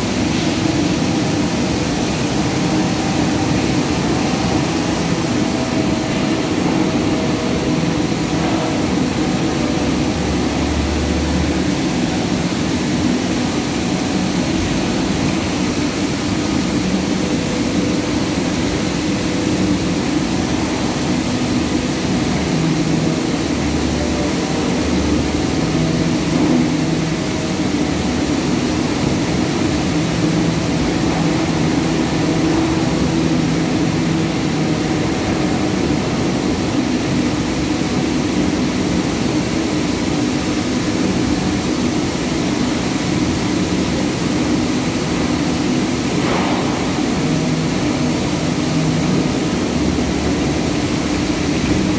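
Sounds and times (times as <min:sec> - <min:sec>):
mill machinery din: 0:00.0 - 0:39.0, 0:43.2 - 0:51.9
low machinery hum: 0:00.0 - 0:51.9.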